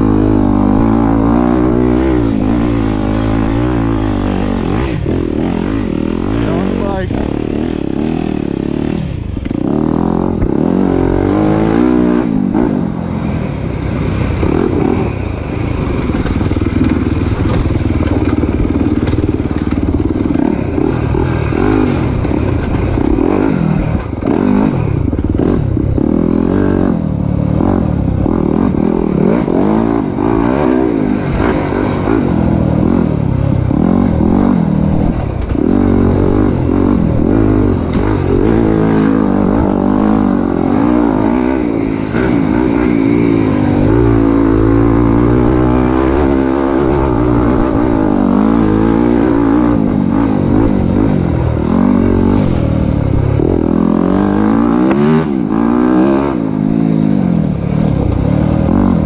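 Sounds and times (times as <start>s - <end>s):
dirt bike engine revving: 0.0s - 59.0s
rattles and clatter from rough ground: 14.7s - 25.5s, 34.8s - 36.0s.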